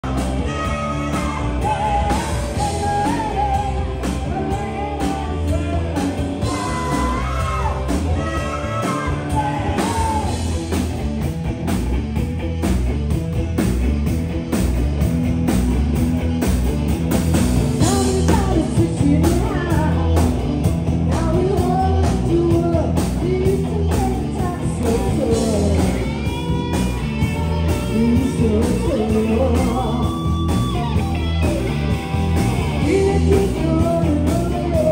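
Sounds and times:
person singing lead vocal: 0.0 - 10.6, 17.8 - 31.4, 32.6 - 34.9
bass guitar: 0.0 - 34.9
electric guitars: 0.0 - 34.9
steady drum beat: 0.0 - 34.9.

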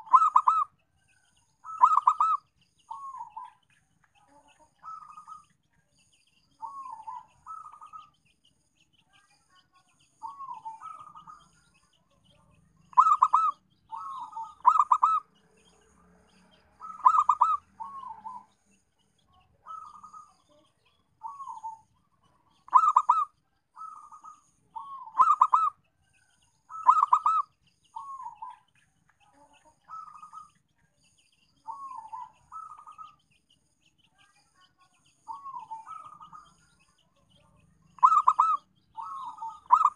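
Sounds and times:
dove cooing: 0.0 - 0.7, 1.6 - 3.5, 6.6 - 8.1, 10.2 - 11.5, 12.9 - 15.3, 16.8 - 18.5, 19.6 - 20.3, 21.2 - 21.8, 22.6 - 25.8, 26.7 - 27.4, 28.0 - 28.6, 31.7 - 33.2, 35.3 - 36.6, 38.0 - 39.9.

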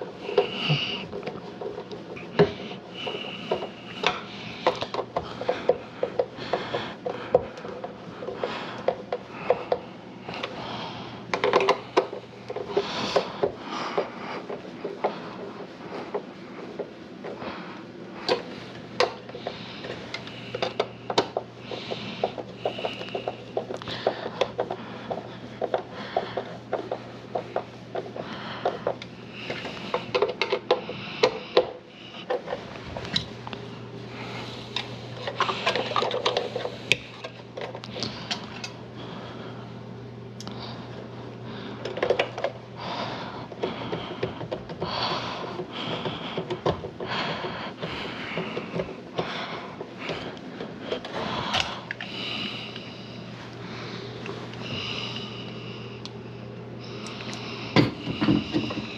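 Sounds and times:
plastic parts clicking and knocking: 0.0 - 10.6, 11.3 - 17.4, 18.2 - 33.6, 34.8 - 38.7, 41.8 - 42.6, 43.5 - 52.1, 57.1 - 58.9
low steady hum: 0.0 - 58.9.

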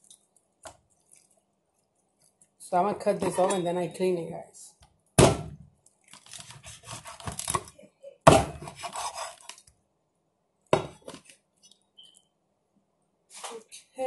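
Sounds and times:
scraping and handling meat: 0.0 - 2.6, 5.8 - 7.7, 8.6 - 9.9
cleaver chopping onto wooden board: 5.2 - 5.6.

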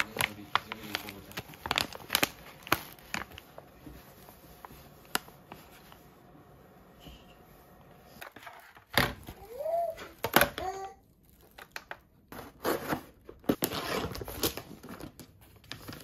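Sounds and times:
plastic pouch crinkling: 0.0 - 5.9, 10.2 - 12.3.

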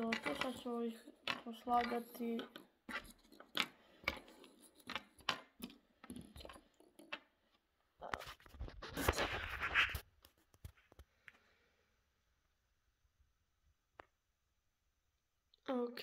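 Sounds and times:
plastic lures tapping on wooden table: 1.2 - 7.3.

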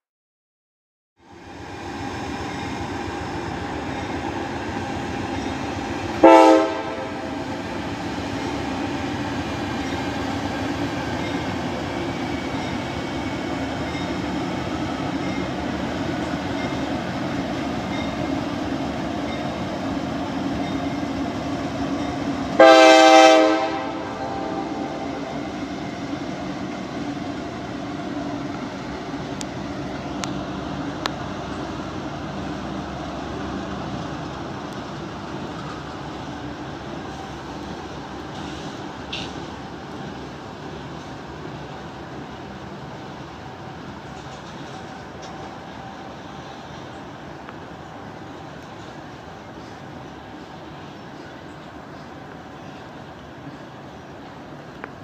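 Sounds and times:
diesel locomotives rumbling past: 1.2 - 55.0
train air horn blasts: 6.1 - 7.6, 22.5 - 25.4.

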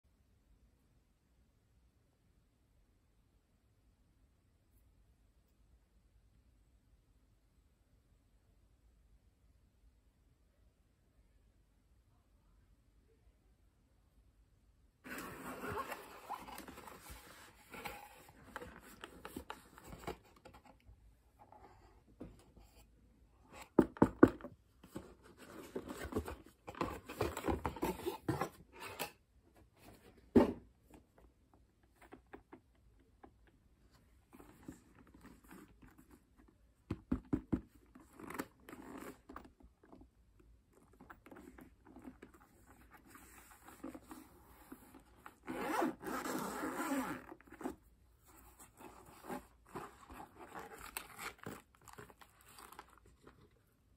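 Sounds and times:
cardboard scraping and rustling: 15.1 - 20.8, 23.5 - 29.1, 40.8 - 53.5.

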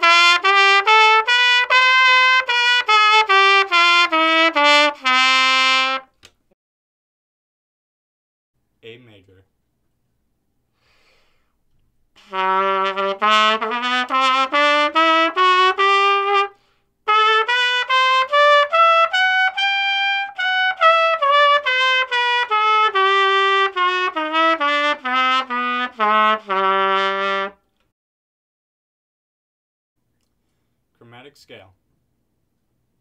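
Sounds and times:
trumpet playing a scale: 0.0 - 6.2, 12.2 - 27.6.

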